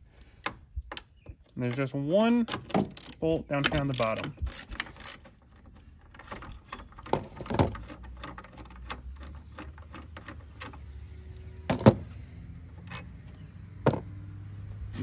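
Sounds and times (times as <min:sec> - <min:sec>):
socket ratchet clicking: 0:02.8 - 0:05.2.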